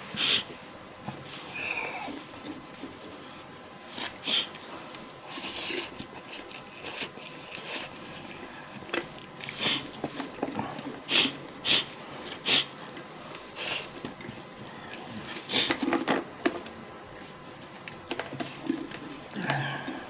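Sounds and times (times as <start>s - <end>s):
person sniffing: 0.1s - 0.5s, 3.9s - 4.6s, 9.5s - 9.9s, 11.0s - 12.7s.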